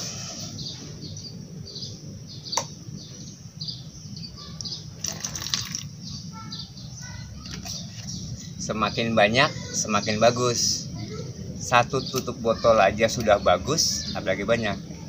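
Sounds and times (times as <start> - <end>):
steady low hum: 0.0 - 5.1, 5.7 - 15.0
small birds chirping: 0.0 - 15.0.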